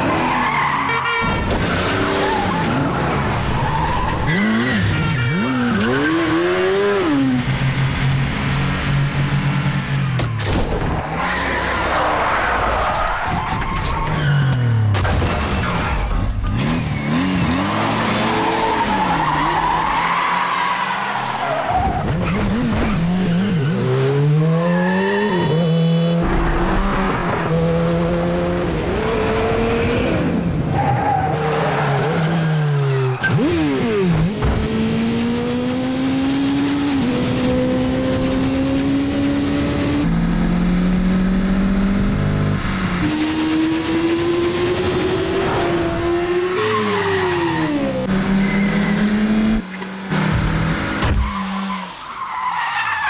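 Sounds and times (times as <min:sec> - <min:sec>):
tyres squealing and skidding: 0:00.0 - 0:07.2, 0:10.3 - 0:27.5, 0:30.6 - 0:34.0, 0:45.0 - 0:49.6, 0:50.7 - 0:53.0
car engine revving: 0:16.4 - 0:51.7.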